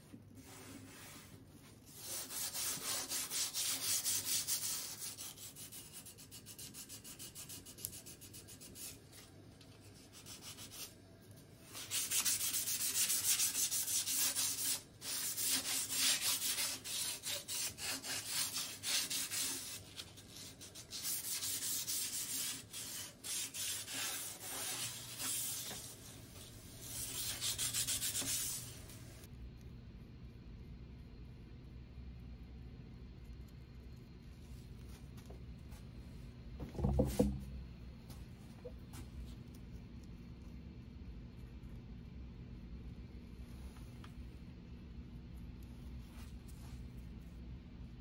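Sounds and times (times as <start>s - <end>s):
sanding sponge rasping on wood: 2.0s - 8.6s, 11.8s - 19.8s, 20.6s - 25.8s, 27.0s - 28.6s.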